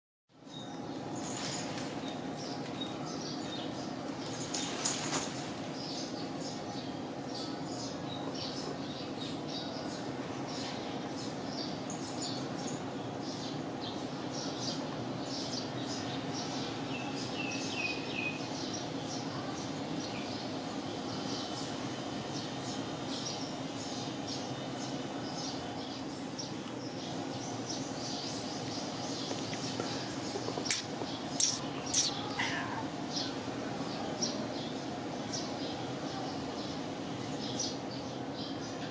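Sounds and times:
small birds chirping: 0.4s - 38.9s.

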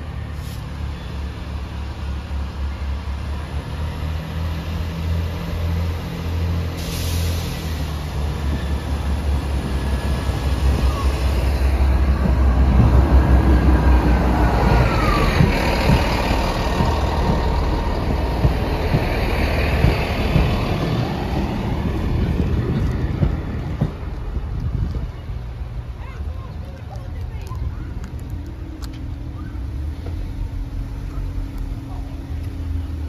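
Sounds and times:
train engine drone: 0.0s - 33.0s
train wheels knocking on rail joints: 11.6s - 25.0s.

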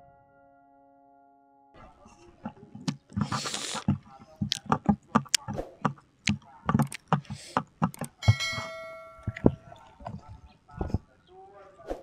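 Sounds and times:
chicken crackling as pulled: 2.9s - 3.9s
bell-like chime: 8.2s - 9.4s.

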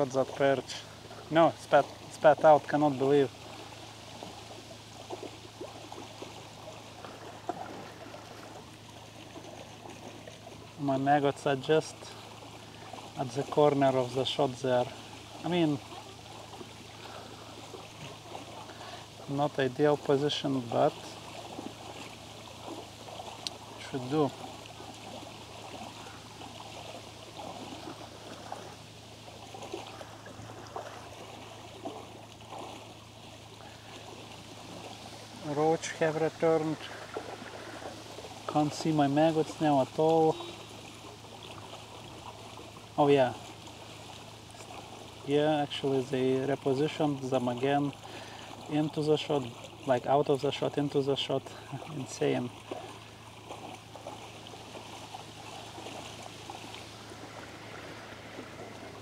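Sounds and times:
steady low hum: 0.0s - 59.0s
water trickling and gurgling: 0.0s - 59.0s
small bubbling blips: 40.3s - 40.8s.

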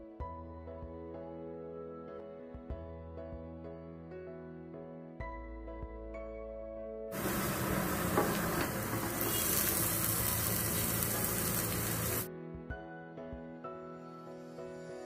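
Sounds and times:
soft background music: 0.0s - 8.0s, 9.5s - 15.0s
onions sizzling in a pan: 7.2s - 12.3s.

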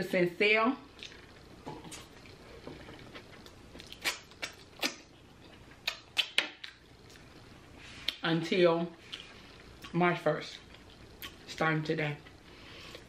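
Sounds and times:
mouth smacks: 3.8s - 5.1s, 5.8s - 6.8s.

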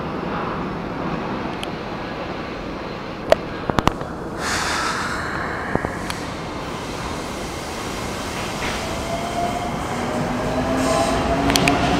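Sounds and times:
train platform noise: 0.0s - 11.9s
jet airliner passing overhead: 0.1s - 11.9s.

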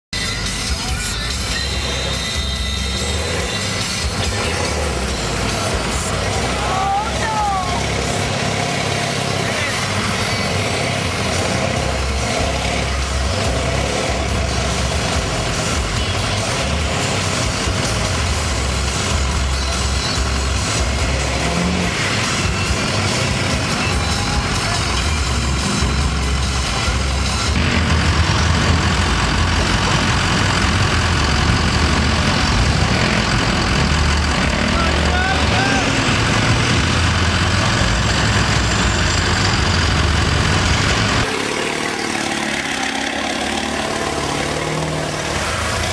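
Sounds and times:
truck engine rumbling: 0.1s - 45.9s
churned water rushing: 39.7s - 45.9s.

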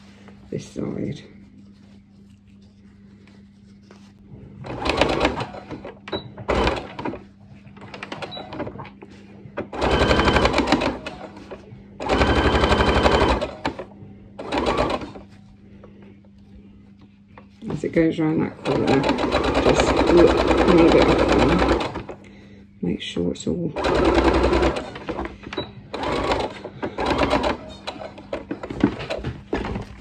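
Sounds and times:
sewing machine stitching: 4.6s - 5.9s, 6.5s - 7.2s, 9.7s - 13.8s, 14.4s - 15.2s, 18.6s - 22.2s, 23.8s - 25.3s, 25.9s - 29.2s.

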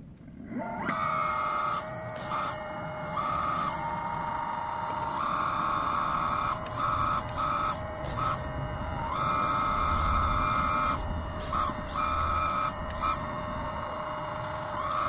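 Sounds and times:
small electric motor whine: 0.1s - 15.0s.

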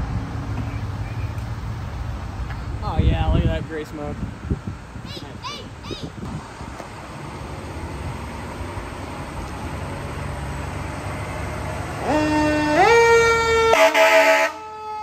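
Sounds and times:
fire truck engine rumble: 0.0s - 15.0s
air horn blast: 11.9s - 15.0s.

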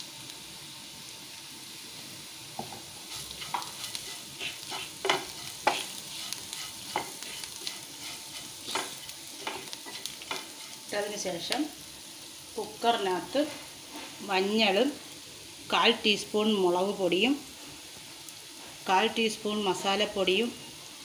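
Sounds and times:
onions sizzling in oil: 0.0s - 21.0s
wooden spatula scraping pan: 3.0s - 10.9s.

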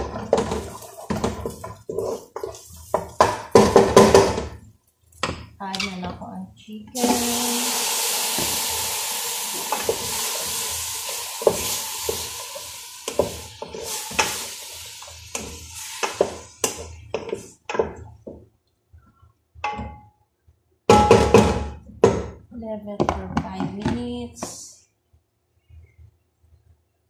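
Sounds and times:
spatula scraping a metal pot: 0.0s - 3.2s
food sizzling in a pot: 0.0s - 4.5s, 7.0s - 18.0s.

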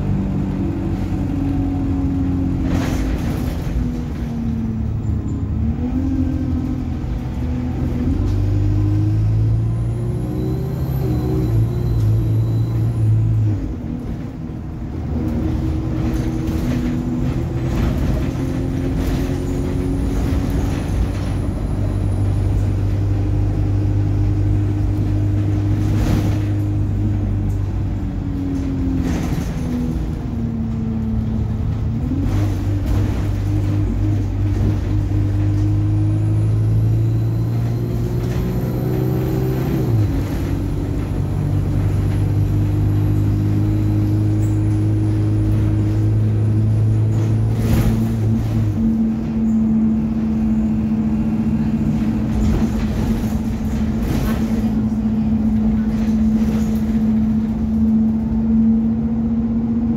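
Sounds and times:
bus diesel engine running: 0.0s - 59.9s.

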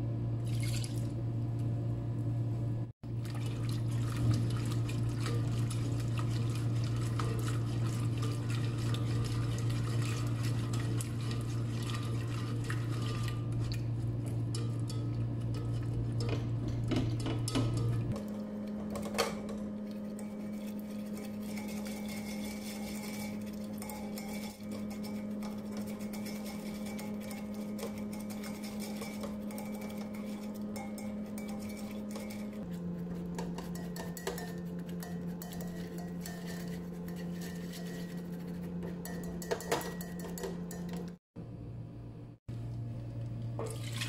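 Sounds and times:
steady low hum: 0.0s - 44.0s
utensil scraping a steel pot: 19.0s - 41.0s.

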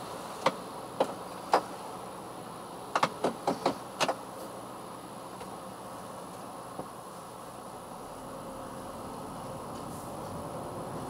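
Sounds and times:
faint car cabin hum: 0.0s - 11.0s.

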